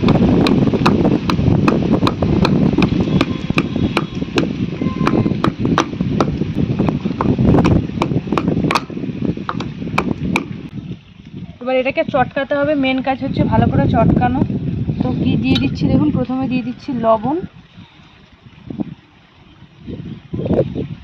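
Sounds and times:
wooden pestle pounding in mortar: 0.0s - 10.6s.

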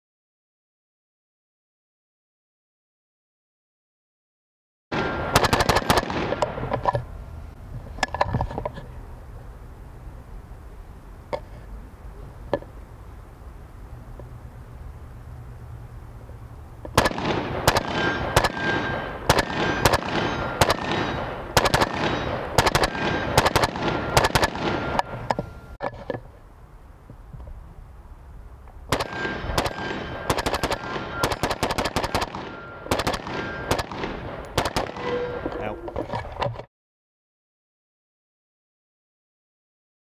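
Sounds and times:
rifle shots: 4.9s - 6.8s, 16.9s - 25.3s, 28.9s - 35.5s
steel plates ringing: 17.9s - 25.8s.

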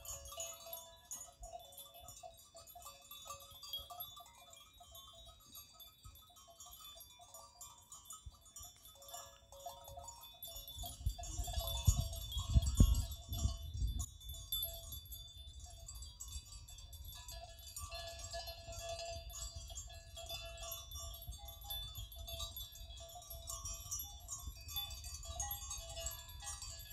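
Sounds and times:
goat bells tinkling: 0.0s - 26.9s
wind buffeting microphone: 10.4s - 17.3s.

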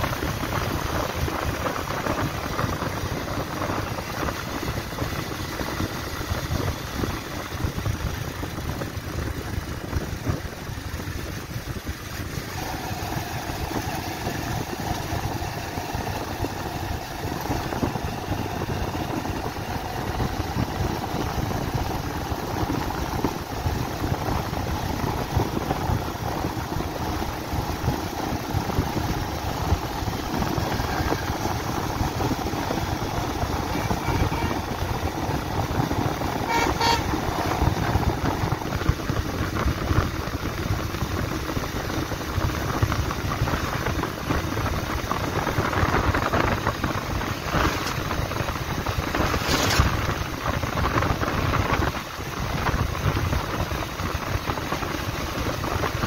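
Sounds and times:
motorcycle engine running: 0.0s - 56.0s
wind and road noise: 0.0s - 56.0s
vehicle horn beep: 33.7s - 34.8s, 36.4s - 37.6s.

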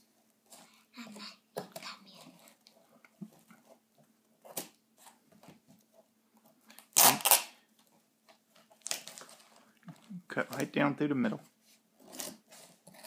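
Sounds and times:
tape and cardboard scraping: 11.7s - 13.0s.

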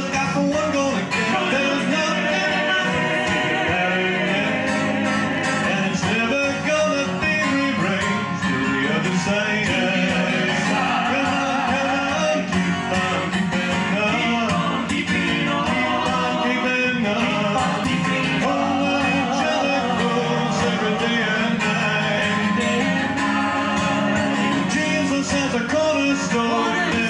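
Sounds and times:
acoustic guitar strumming: 0.0s - 27.0s
voices singing in harmony: 0.0s - 27.0s.

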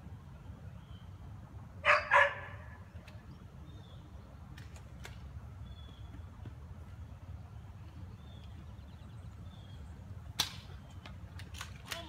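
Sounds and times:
dog barking loudly: 1.8s - 2.7s.

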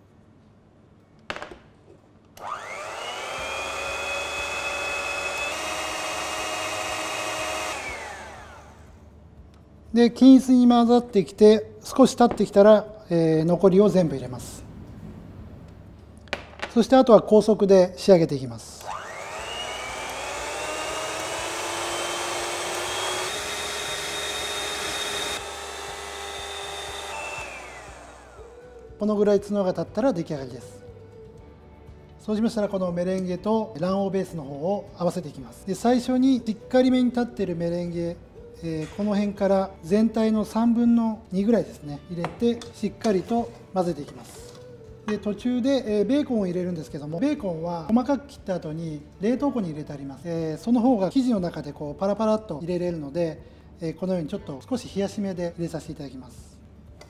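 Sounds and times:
electric mixer whining: 2.4s - 9.0s, 18.8s - 28.8s.

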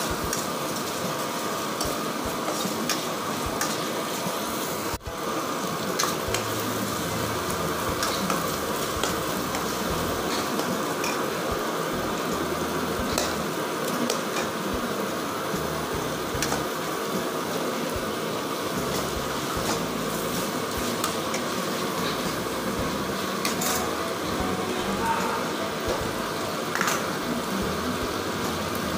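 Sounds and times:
food sizzling in a pan: 0.0s - 28.9s.

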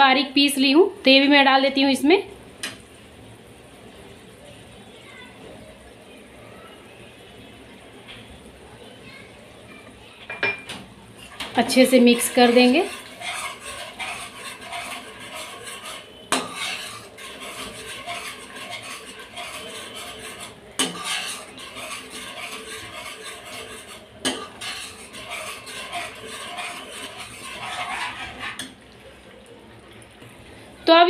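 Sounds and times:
spoon stirring and scraping pan: 10.4s - 29.4s.

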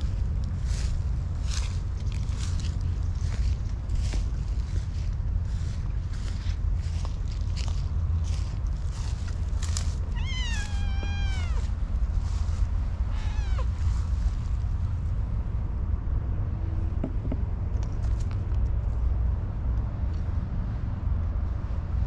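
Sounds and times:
steady low rumble: 0.0s - 22.0s
cat meowing: 10.1s - 11.8s, 13.0s - 13.9s.

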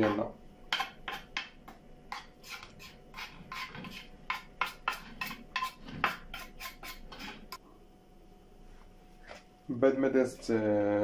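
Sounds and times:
metal utensil scraping dish: 2.1s - 7.6s.

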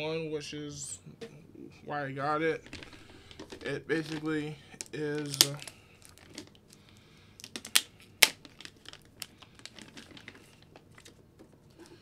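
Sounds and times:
packaging crinkling and rustling: 2.6s - 12.0s.

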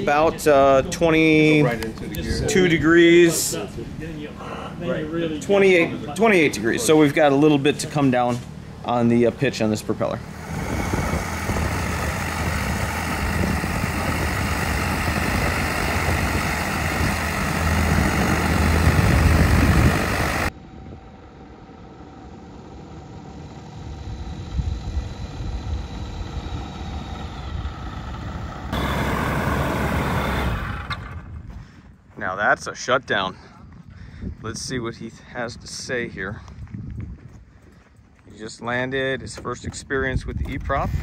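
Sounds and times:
propeller aircraft engine running: 0.0s - 32.1s.

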